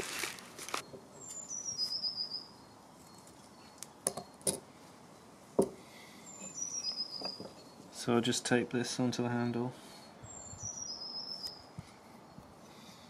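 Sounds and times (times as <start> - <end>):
small bird calling: 6.0 - 7.9, 9.9 - 11.7.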